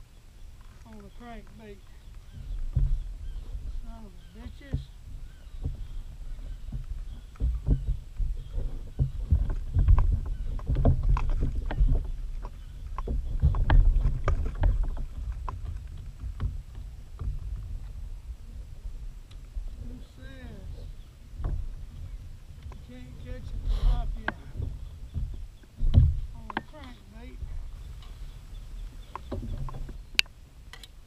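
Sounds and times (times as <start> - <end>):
fishing gear knocking on plastic kayak: 2.3 - 18.0, 21.4 - 27.8.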